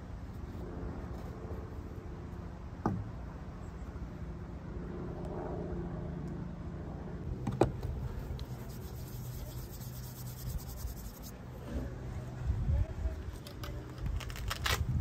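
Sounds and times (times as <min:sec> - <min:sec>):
low steady rumble: 0:00.0 - 0:15.0
hands rubbing a cast: 0:08.1 - 0:11.3.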